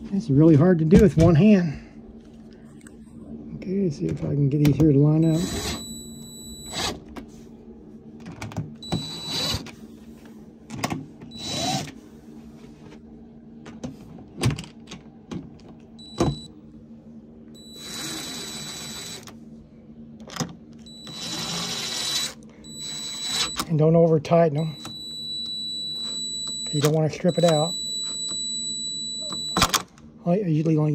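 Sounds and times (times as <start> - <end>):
cordless drill motor whining: 5.2 - 7.1, 8.8 - 9.7, 11.3 - 11.9, 17.6 - 19.3, 20.8 - 23.7, 24.7 - 29.6.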